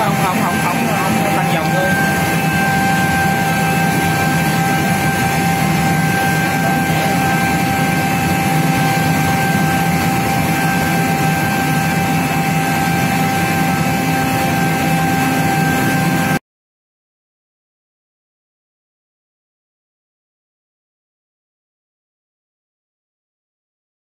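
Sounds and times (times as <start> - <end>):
air compressor running: 0.0 - 16.4
high-pitched whine: 0.0 - 16.4.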